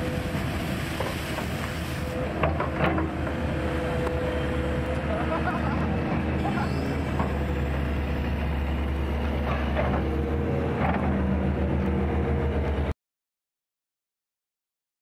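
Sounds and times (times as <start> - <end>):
excavator diesel engine running: 0.0 - 12.9.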